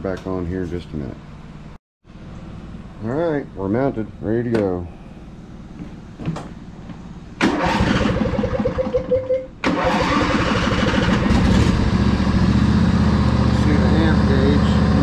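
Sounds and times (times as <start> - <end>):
starter motor cranking: 7.4 - 11.9
mower engine running: 7.4 - 15.0.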